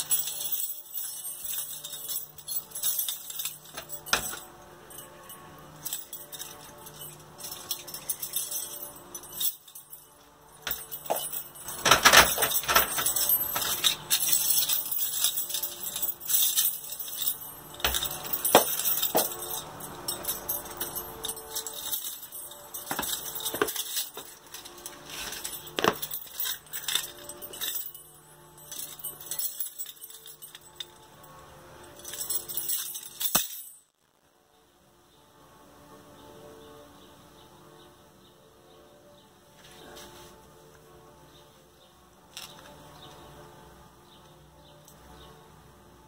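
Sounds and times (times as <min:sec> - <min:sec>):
metal keys jangling: 0:00.0 - 0:33.8.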